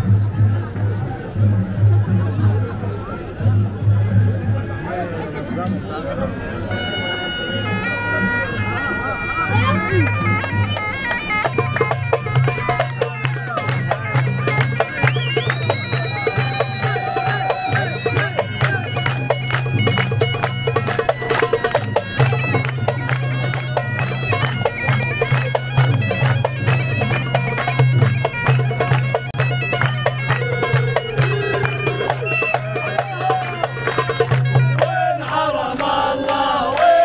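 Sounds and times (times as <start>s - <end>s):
bagpipes playing folk tune: 6.5s - 35.7s
handclaps: 10.0s - 37.0s.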